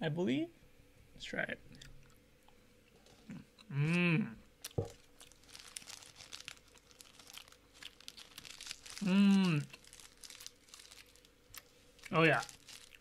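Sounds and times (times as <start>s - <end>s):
man humming: 3.3s - 4.4s, 9.0s - 9.7s
snack crunching: 4.6s - 13.0s
wrapper crinkling: 4.6s - 13.0s.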